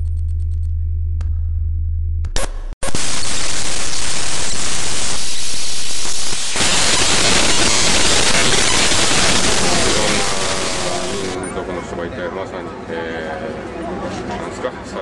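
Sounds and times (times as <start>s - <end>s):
loud static hiss: 2.8s - 11.4s.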